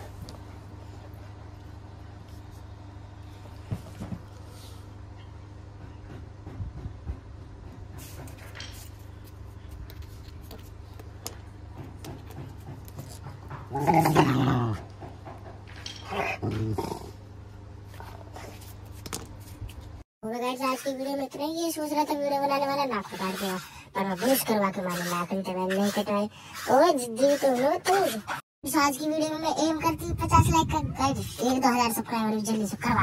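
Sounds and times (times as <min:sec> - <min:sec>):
dog growling: 0:13.7 - 0:14.9, 0:16.0 - 0:17.2.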